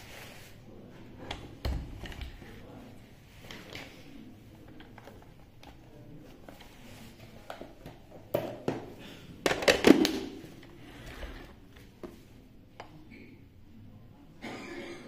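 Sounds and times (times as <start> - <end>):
plastic handling noises: 1.2 - 12.9.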